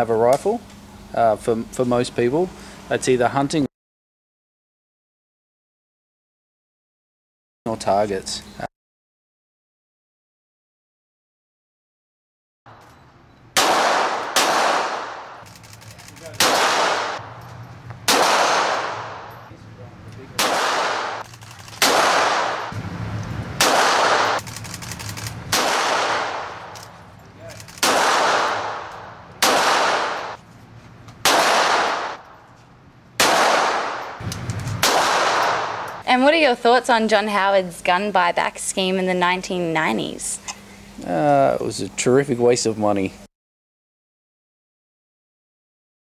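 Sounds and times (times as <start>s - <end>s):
pistol shots echoing indoors: 13.6s - 15.4s, 16.4s - 17.2s, 18.1s - 19.3s, 20.4s - 21.2s, 21.8s - 22.8s, 23.6s - 24.4s, 25.5s - 26.5s, 27.8s - 30.4s, 31.2s - 32.2s, 33.2s - 34.2s, 34.8s - 36.0s.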